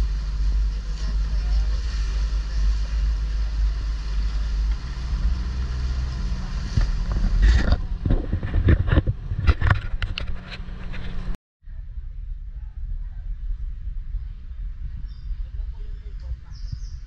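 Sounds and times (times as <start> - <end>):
rushing water: 0.0 - 8.8
water slapping and splashing: 0.0 - 11.3
boat engine running: 0.0 - 11.4
wind: 0.0 - 17.0.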